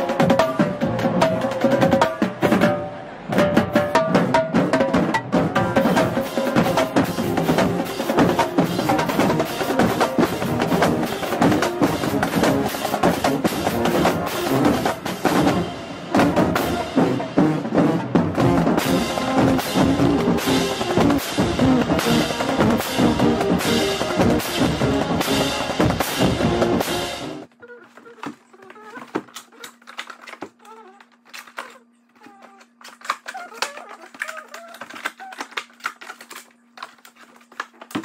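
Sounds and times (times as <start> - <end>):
background music: 0.0 - 27.5
drum beat and percussion: 0.0 - 27.5.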